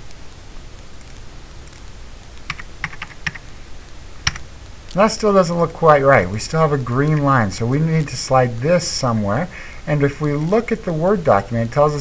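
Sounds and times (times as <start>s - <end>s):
steady low hum: 0.0s - 12.0s
computer keyboard keystrokes: 2.5s - 3.4s, 4.2s - 4.4s.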